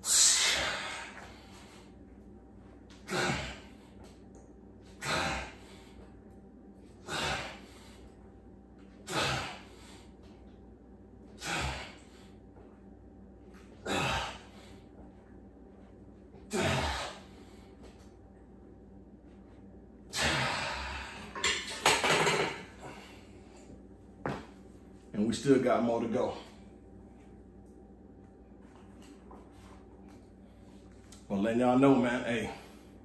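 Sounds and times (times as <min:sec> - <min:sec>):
man exhaling forcefully: 0:00.0 - 0:01.4, 0:03.1 - 0:03.8, 0:05.0 - 0:05.8, 0:07.0 - 0:07.9, 0:09.1 - 0:10.0, 0:11.4 - 0:12.1, 0:13.8 - 0:14.6, 0:16.5 - 0:17.4, 0:20.1 - 0:21.3.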